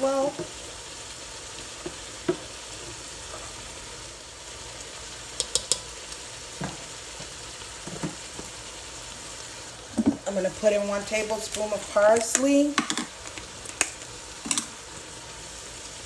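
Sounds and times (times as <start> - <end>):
food sizzling in a pot: 0.0 - 16.0
spoon tapping pot: 5.4 - 5.9.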